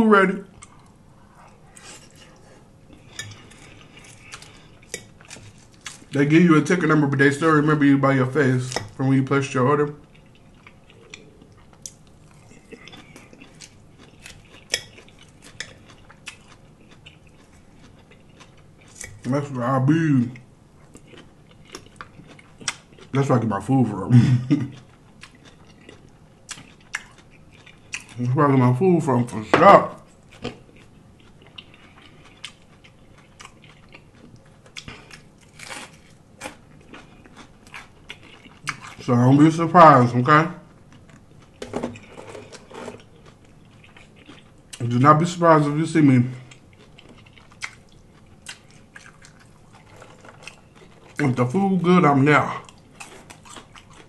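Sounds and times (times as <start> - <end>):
chewing and biting salad: 0.5 - 6.2, 10.0 - 19.6, 20.8 - 23.2, 24.6 - 28.3, 30.0 - 39.1, 40.6 - 45.7, 46.3 - 54.0.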